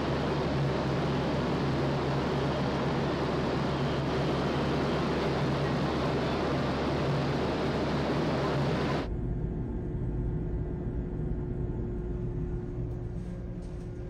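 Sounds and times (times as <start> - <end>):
ventilation rushing hiss: 0.0 - 9.1
quieter hum: 0.0 - 14.0
ship machinery low drone: 0.0 - 14.0.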